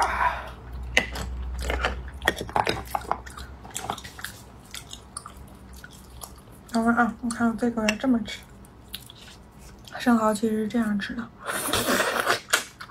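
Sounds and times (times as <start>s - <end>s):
chewing with mouth clicks: 0.7s - 7.4s, 8.5s - 10.0s.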